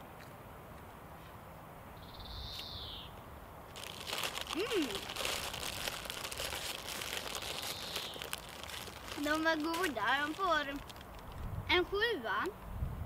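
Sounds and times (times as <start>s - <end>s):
plastic bag crinkling: 3.7s - 11.5s.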